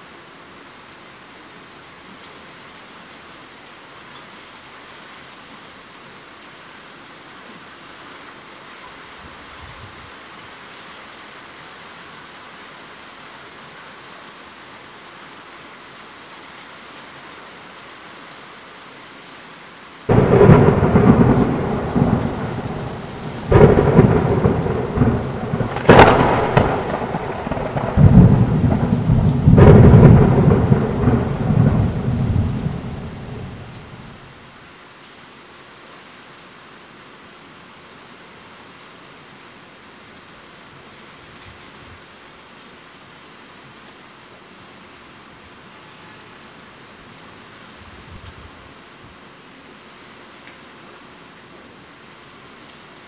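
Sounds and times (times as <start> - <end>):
steady rain: 0.0 - 53.0
thunder cracks and rumbling: 20.1 - 34.2.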